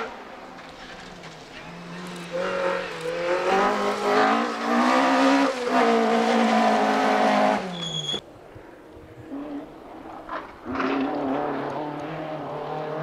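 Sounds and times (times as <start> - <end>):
rally car engine revving: 0.0 - 7.8, 9.3 - 13.0.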